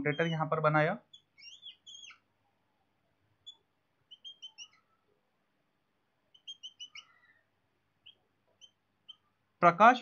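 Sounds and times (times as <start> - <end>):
marker squeaking on whiteboard: 0.0 - 2.3.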